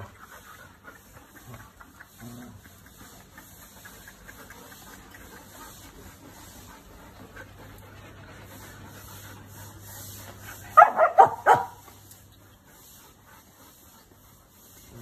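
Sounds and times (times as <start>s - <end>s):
dog barking: 10.8s - 11.8s.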